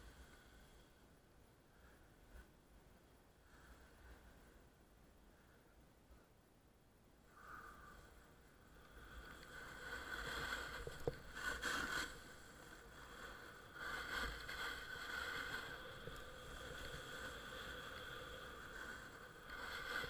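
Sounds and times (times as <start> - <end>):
snowboard scraping over snow: 9.0 - 20.0.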